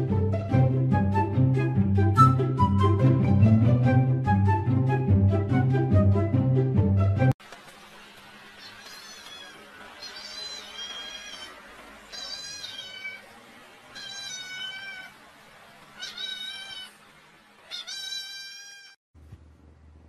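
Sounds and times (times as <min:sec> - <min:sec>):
cat meowing: 0:08.6 - 0:13.2, 0:13.9 - 0:15.2, 0:16.0 - 0:17.0, 0:17.6 - 0:19.0.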